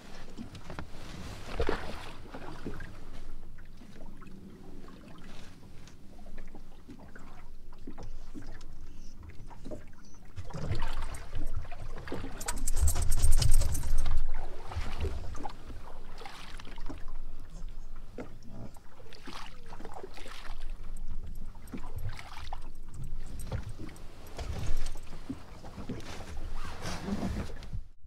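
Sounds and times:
water sloshing at boat hull: 0:00.0 - 0:27.9
rumble and rustle near microphone: 0:00.0 - 0:28.0
knocks and splashes: 0:00.3 - 0:02.9, 0:09.5 - 0:18.4, 0:19.0 - 0:26.3.

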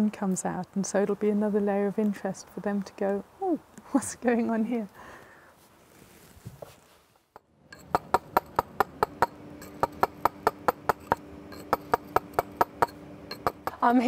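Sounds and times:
mallet striking chisel on stone: 0:07.4 - 0:14.0.

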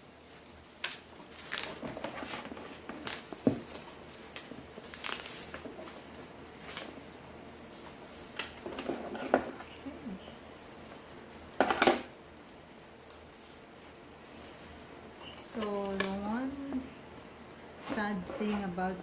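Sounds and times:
wrapping rustling: 0:00.0 - 0:09.9.

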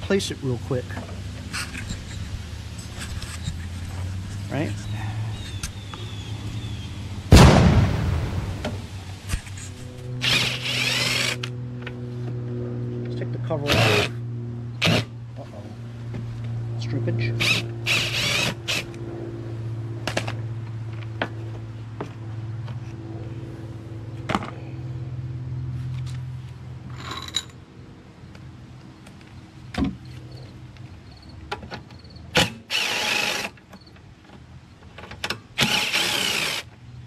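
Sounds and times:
cordless drill whirring: 0:10.2 - 0:11.5, 0:17.4 - 0:19.0, 0:32.4 - 0:33.5, 0:35.6 - 0:36.7.

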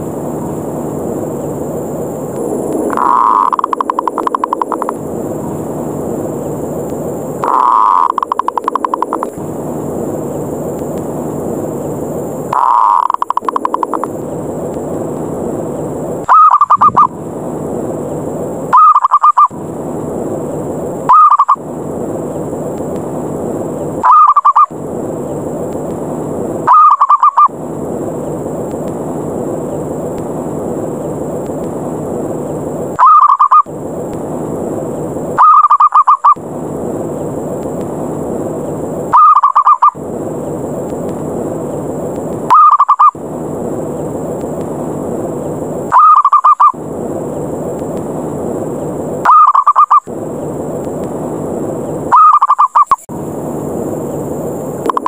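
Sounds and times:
steady hiss: 0:00.0 - 0:52.2, 0:52.8 - 0:55.0
dove trilled cooing: 0:07.4 - 0:09.0, 0:12.6 - 0:13.7, 0:16.3 - 0:17.1, 0:18.7 - 0:19.5, 0:21.1 - 0:21.6, 0:24.0 - 0:24.7, 0:26.7 - 0:27.5, 0:33.0 - 0:33.6, 0:35.4 - 0:36.4, 0:39.1 - 0:40.0, 0:42.5 - 0:43.2, 0:45.9 - 0:46.8, 0:49.3 - 0:50.1, 0:52.1 - 0:53.0.

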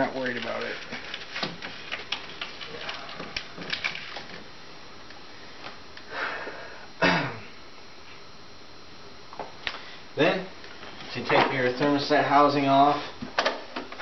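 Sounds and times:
person breathing: 0:05.3 - 0:06.9, 0:09.7 - 0:10.2.

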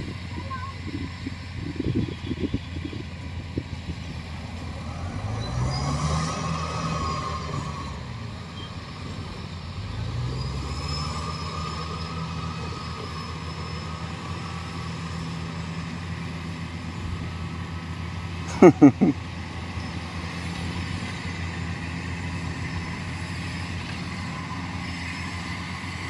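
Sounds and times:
tracked vehicle engine running: 0:00.0 - 0:26.0.

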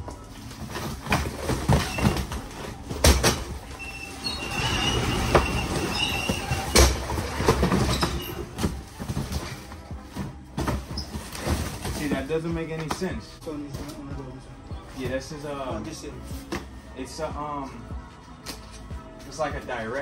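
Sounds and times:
boxes thudding down: 0:00.5 - 0:12.2
rollers squealing: 0:03.6 - 0:08.7.

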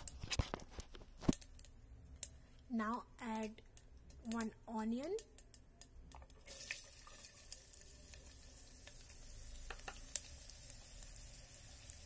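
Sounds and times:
oil crackles and pop: 0:00.0 - 0:02.4, 0:05.1 - 0:12.0
onions sizzling in hot oil: 0:06.3 - 0:12.0.

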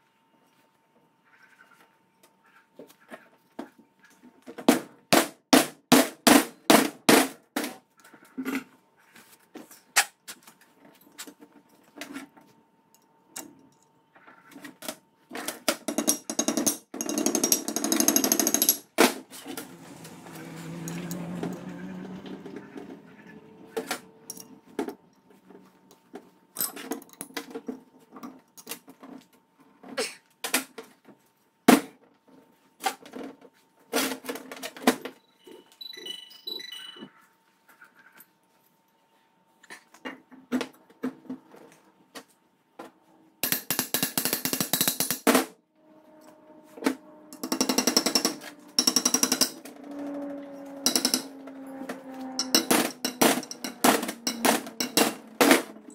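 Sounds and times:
metal parts clattering on workbench: 0:15.4 - 0:19.5, 0:23.9 - 0:24.6, 0:47.4 - 0:49.8, 0:50.9 - 0:51.4, 0:52.4 - 0:55.9.

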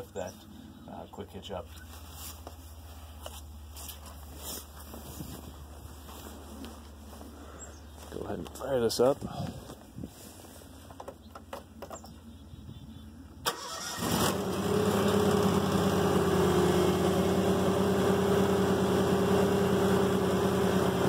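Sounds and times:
garden tractor engine running: 0:13.4 - 0:21.0.

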